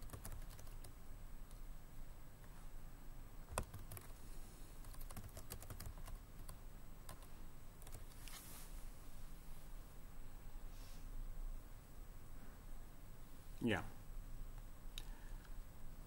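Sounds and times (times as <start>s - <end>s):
laptop keyboard typing: 0.0s - 1.6s, 3.5s - 4.2s, 4.8s - 8.2s
soft hiss: 0.4s - 5.1s, 6.1s - 16.0s.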